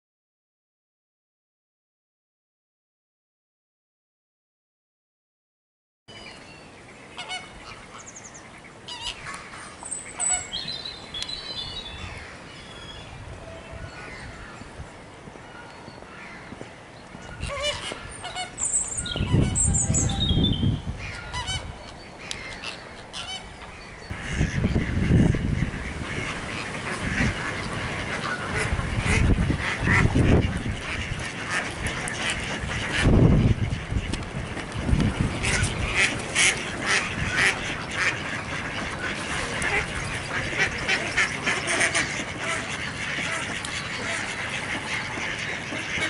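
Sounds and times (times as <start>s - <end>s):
goose-like honking: 7.2s - 8.0s, 8.9s - 10.6s, 17.4s - 18.6s, 21.0s - 23.5s, 24.1s - 34.6s, 35.2s - 46.0s.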